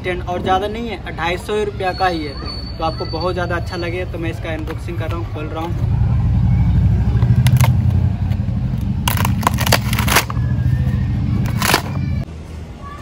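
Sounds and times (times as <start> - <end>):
steady low rumble: 5.6 - 12.3.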